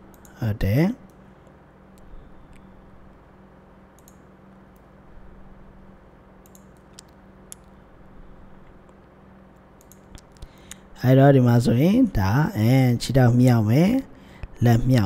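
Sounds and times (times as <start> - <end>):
faint low hum: 0.0 - 15.0
mouse and keyboard clicks: 6.4 - 7.7.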